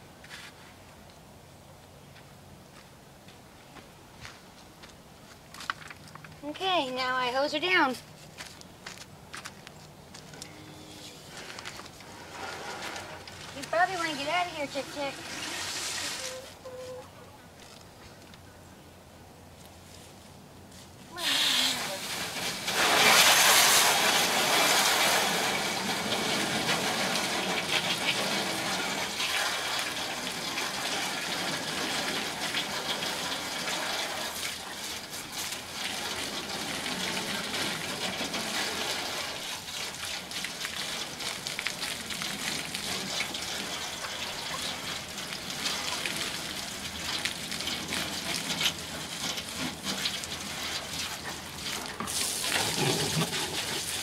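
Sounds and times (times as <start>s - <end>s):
garden hose spraying water: 11.3s - 16.6s, 21.1s - 54.0s.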